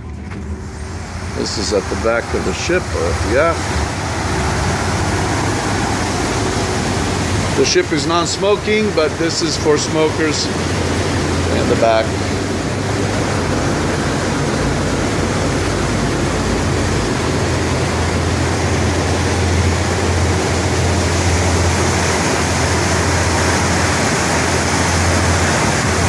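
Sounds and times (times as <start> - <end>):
churned water rushing: 0.0 - 26.0
ship engine drone: 0.0 - 26.0.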